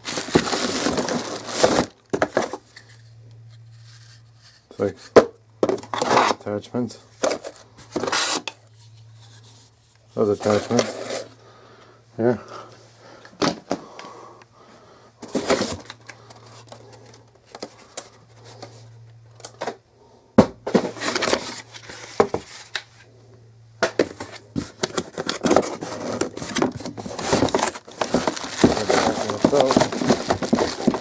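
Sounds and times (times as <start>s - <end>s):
plastic wrap crinkling: 0.0s - 2.1s, 24.9s - 31.0s
low steady hum: 0.0s - 31.0s
cardboard scraping and knocking: 20.4s - 22.6s, 24.0s - 31.0s.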